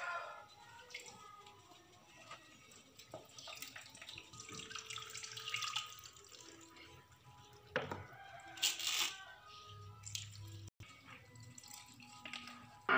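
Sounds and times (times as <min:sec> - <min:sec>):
milk pouring into metal pot: 0:00.6 - 0:08.4.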